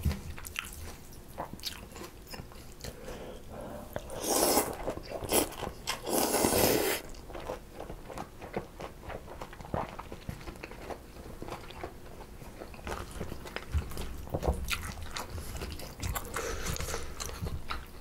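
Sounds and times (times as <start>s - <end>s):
soft chewing: 0.0s - 18.0s
loud noodle slurps: 4.0s - 7.1s.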